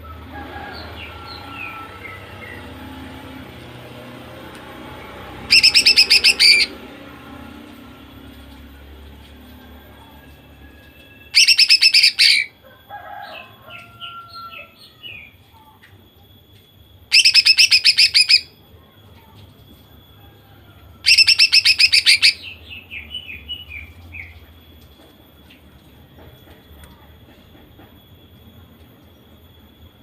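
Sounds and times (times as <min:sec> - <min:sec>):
bird chirps and whistles: 0:05.5 - 0:06.8, 0:11.4 - 0:12.5, 0:17.1 - 0:18.5, 0:21.1 - 0:23.9.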